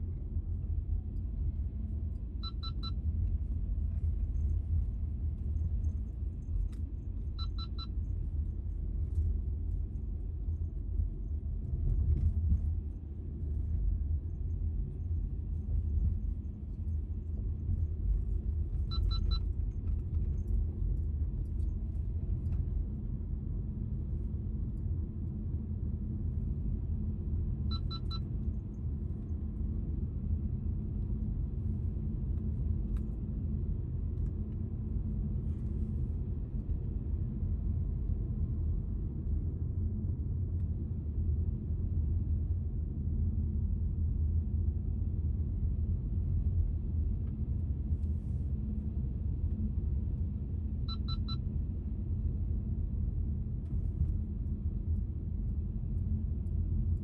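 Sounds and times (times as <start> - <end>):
car road and engine rumble: 0.0 - 57.0
short high electronic beeps: 27.7 - 28.2, 50.9 - 51.4.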